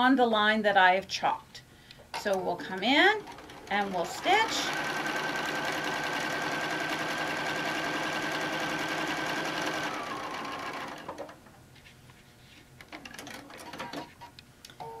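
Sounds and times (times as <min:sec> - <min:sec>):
sewing machine whining: 0:02.8 - 0:11.4.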